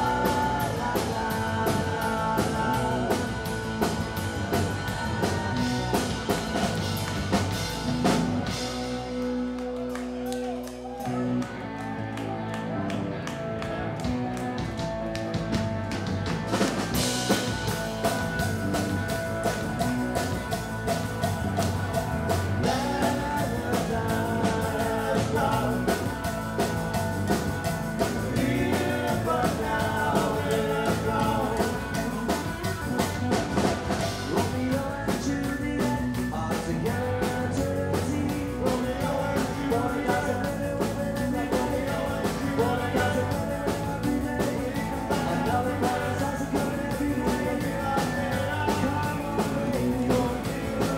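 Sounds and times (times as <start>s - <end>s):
male singer: 0.0s - 6.7s, 22.6s - 50.9s
drum kit beat: 0.0s - 9.5s, 14.1s - 50.9s
electric guitars: 0.0s - 50.9s.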